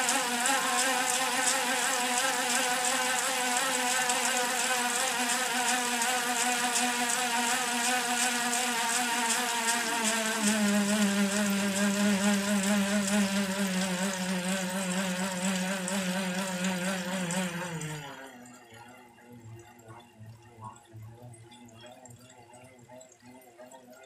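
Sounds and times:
bike trainer whining: 0.0 - 18.4.

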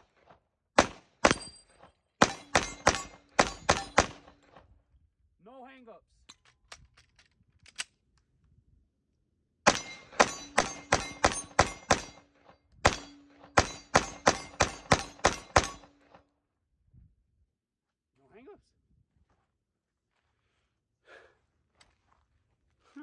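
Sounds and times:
pistol shots: 0.8 - 1.6, 2.2 - 4.4, 9.7 - 12.2, 12.8 - 15.9
gun handling clicks: 6.2 - 8.3.

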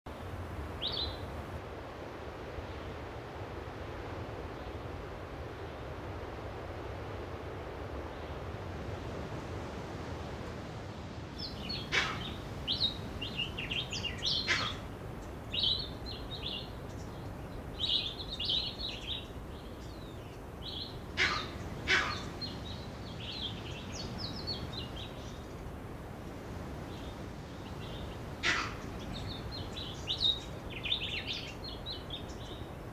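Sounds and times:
low background rush: 0.1 - 32.9
birds chirping and twittering: 0.7 - 1.5, 11.4 - 25.8, 26.8 - 32.9.

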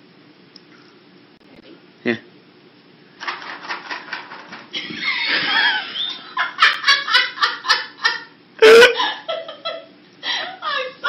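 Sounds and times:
person laughing: 4.8 - 11.0.

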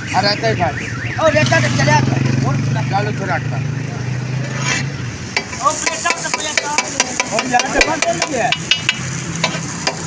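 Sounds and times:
food sizzling: 5.0 - 10.0
metal spatulas striking a griddle: 5.4 - 10.0.

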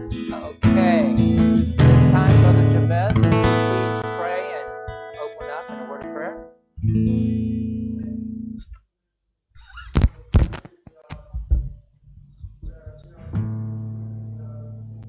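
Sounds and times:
instrumental chord ringing: 0.0 - 8.6.

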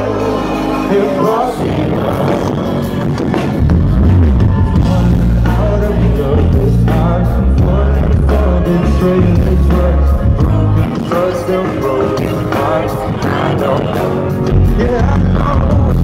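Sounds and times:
man singing: 0.0 - 3.6, 4.5 - 16.0
heavy bass: 0.0 - 16.0.

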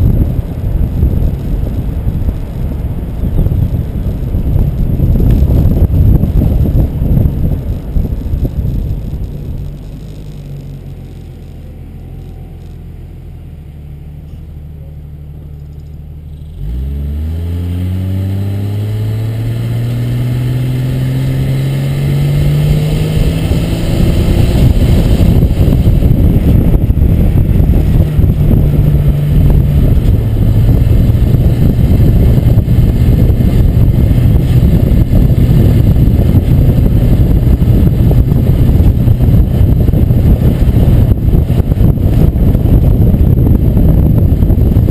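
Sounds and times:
vehicle engine hum: 0.0 - 44.9
wind and road rush: 0.0 - 44.9.

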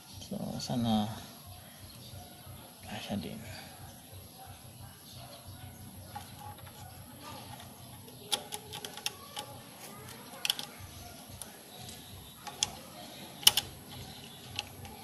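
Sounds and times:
small parts clicking and tapping: 6.0 - 15.0.

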